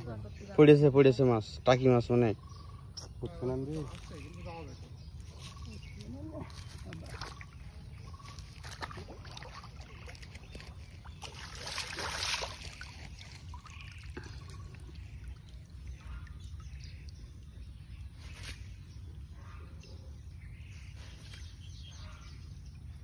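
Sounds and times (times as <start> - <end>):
water splashing and trickling: 3.1 - 19.6.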